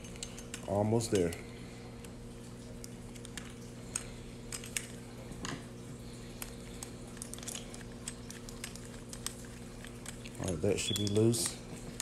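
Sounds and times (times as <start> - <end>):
metal lock parts handled: 0.0 - 1.4, 6.4 - 12.0
steady low hum: 0.0 - 12.0.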